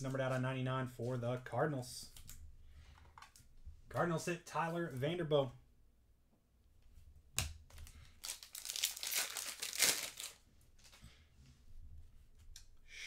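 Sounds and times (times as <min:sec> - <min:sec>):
wrapper crinkling and tearing: 0:07.8 - 0:11.0.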